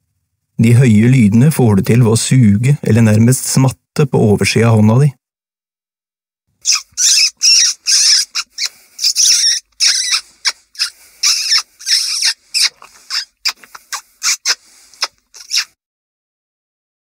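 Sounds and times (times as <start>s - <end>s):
high mouse squeaks: 6.6s - 15.8s.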